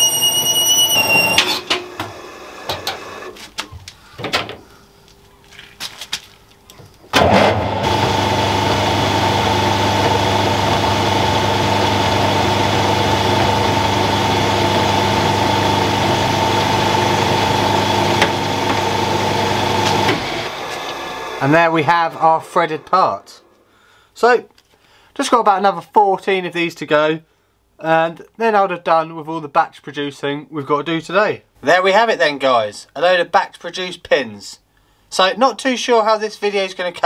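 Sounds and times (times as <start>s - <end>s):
metal lathe motor and gear whine: 0.0s - 3.3s, 7.2s - 23.1s.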